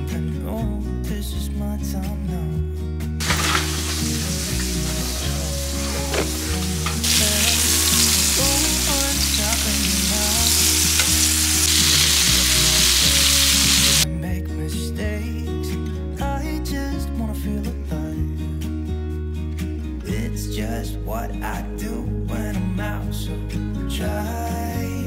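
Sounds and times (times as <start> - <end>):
soft background music: 0.0 - 25.0
chicken sizzling in oil: 3.2 - 14.0.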